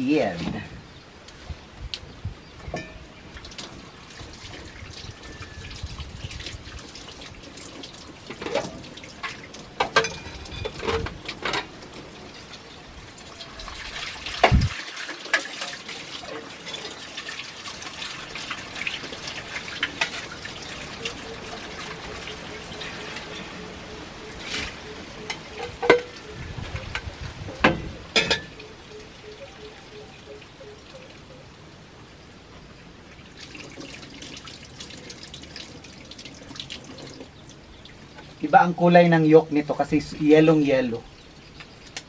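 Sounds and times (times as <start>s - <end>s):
dishes clinking and knocking: 2.7s - 3.0s, 9.8s - 11.7s, 25.3s - 26.2s, 27.5s - 28.6s
tap water running into metal sink: 13.3s - 21.8s, 33.4s - 37.3s.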